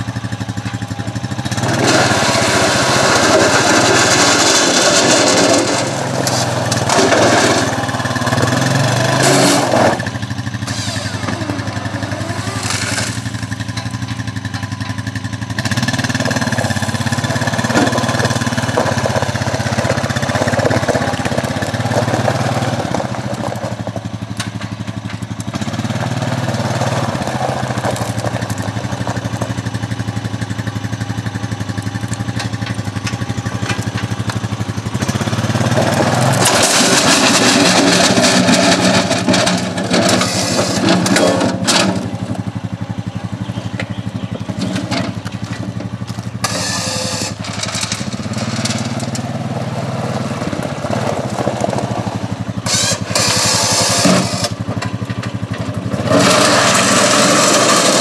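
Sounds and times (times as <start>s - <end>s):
atv engine running under load: 0.0s - 58.0s
loud noise: 1.5s - 13.4s, 56.1s - 58.0s.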